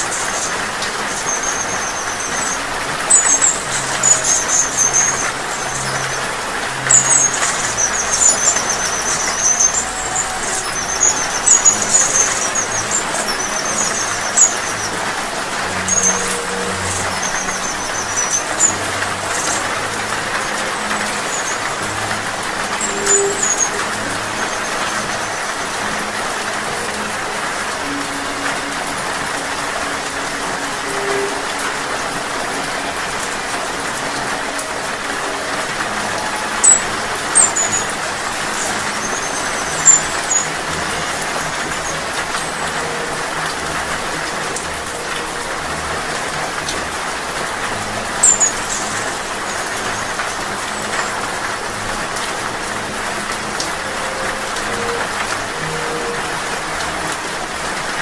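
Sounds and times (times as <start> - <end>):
hummingbird chirps: 0.0 - 57.9
steady rain: 0.0 - 58.0.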